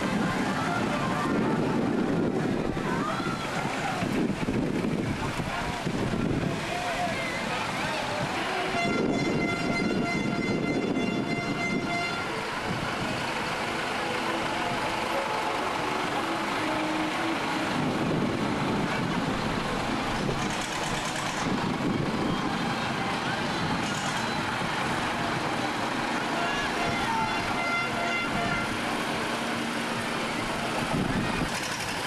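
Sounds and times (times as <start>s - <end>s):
tractor engine running: 0.0s - 8.8s, 10.9s - 32.0s
high-pitched horn tone: 8.6s - 12.5s, 26.5s - 28.9s.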